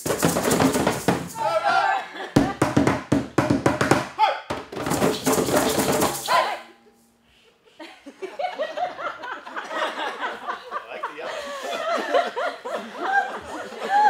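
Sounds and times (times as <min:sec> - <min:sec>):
hand drumming: 0:00.0 - 0:01.4, 0:02.4 - 0:06.4
people laughing and chattering: 0:01.4 - 0:02.6, 0:06.2 - 0:14.0.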